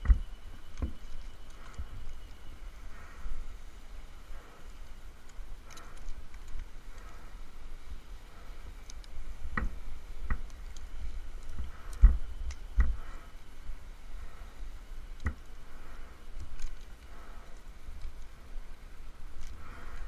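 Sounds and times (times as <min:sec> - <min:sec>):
rope hardware knocks and clicks: 0:00.0 - 0:01.9, 0:09.5 - 0:13.1, 0:15.2 - 0:15.5.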